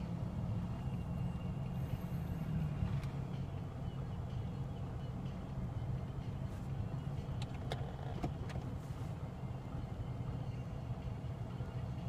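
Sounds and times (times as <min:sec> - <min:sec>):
car cabin rumble: 0:06.4 - 0:09.3.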